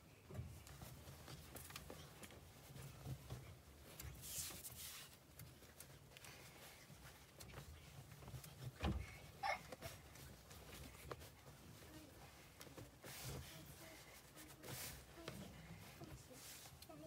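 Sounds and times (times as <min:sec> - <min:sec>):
cloth rustling: 0:00.4 - 0:17.0
soft thump: 0:08.8 - 0:09.2.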